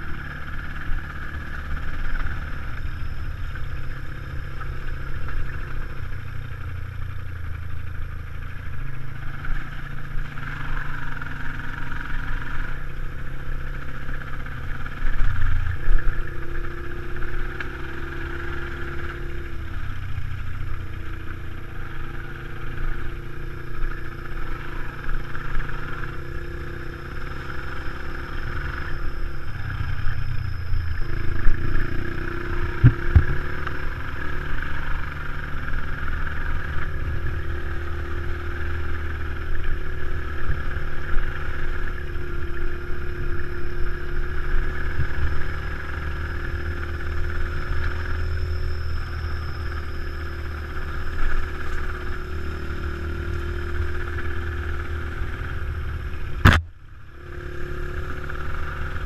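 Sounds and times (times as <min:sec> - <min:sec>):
motorcycle engines revving: 0:00.0 - 0:59.0
wind and bumps on camera: 0:32.8 - 0:33.6, 0:56.4 - 0:56.8.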